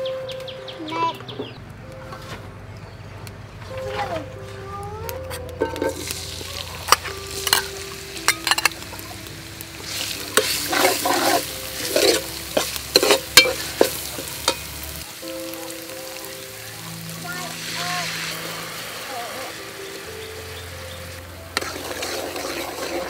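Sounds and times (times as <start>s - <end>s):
metal ladle scraping pot: 5.6s - 7.7s, 8.3s - 8.8s, 9.9s - 14.7s, 21.5s - 23.0s
spice paste sizzling in oil: 5.8s - 23.0s
ladle clicking on pot: 6.9s - 8.8s, 10.4s - 14.7s.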